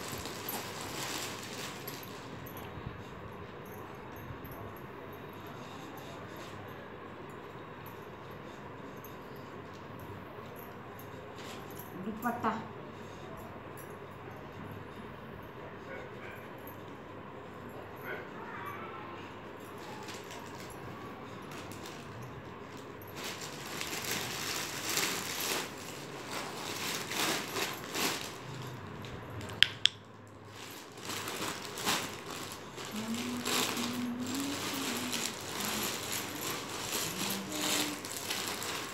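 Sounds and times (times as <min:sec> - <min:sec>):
person humming: 0:32.9 - 0:36.1, 0:37.0 - 0:38.2.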